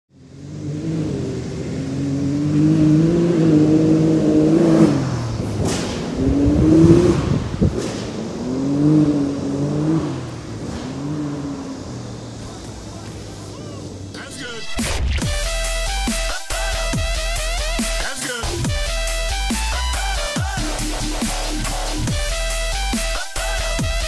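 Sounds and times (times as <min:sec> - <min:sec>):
engine revving: 0:00.1 - 0:24.0
sharp pop: 0:05.6 - 0:06.5, 0:07.6 - 0:08.6.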